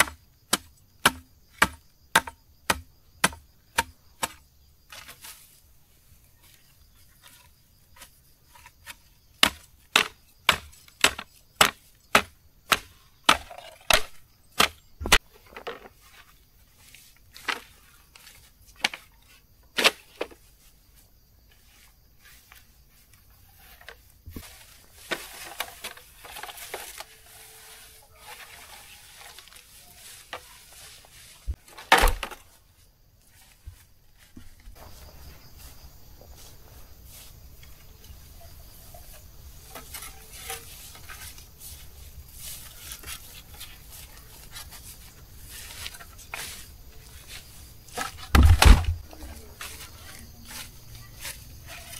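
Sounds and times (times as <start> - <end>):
blade chopping wood: 0.0 - 5.1, 9.4 - 15.3, 31.7 - 32.4, 48.0 - 49.0
rustling: 12.7 - 51.9.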